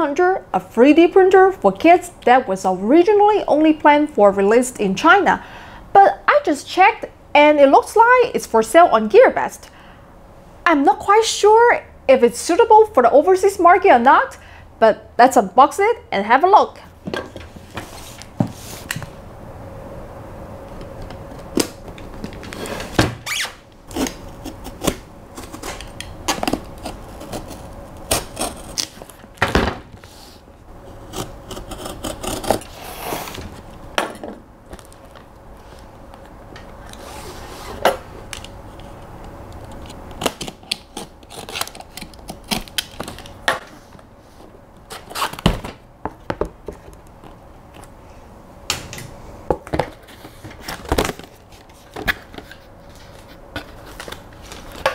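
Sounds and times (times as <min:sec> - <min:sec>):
cardboard tearing: 0:22.5 - 0:29.2, 0:31.0 - 0:33.5, 0:40.2 - 0:43.4
knife slicing tape and cardboard: 0:22.6 - 0:29.2, 0:31.0 - 0:33.5, 0:40.2 - 0:43.1.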